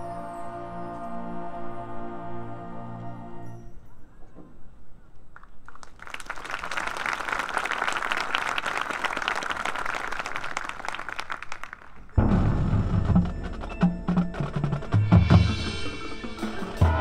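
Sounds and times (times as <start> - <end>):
spectators applauding: 5.4 - 12.2
marching band playing: 12.2 - 17.0.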